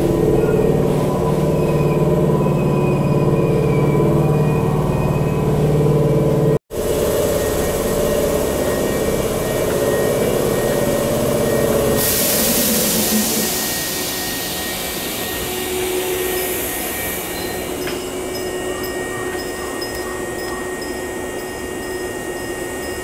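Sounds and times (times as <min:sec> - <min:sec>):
electric train equipment humming: 0:00.0 - 0:23.0
loud hiss of released air: 0:12.0 - 0:17.8.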